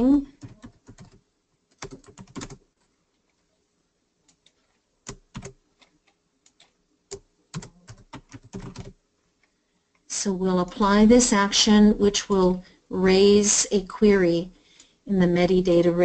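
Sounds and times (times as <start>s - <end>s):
typing on computer keyboard: 0.2s - 3.4s, 4.2s - 9.0s.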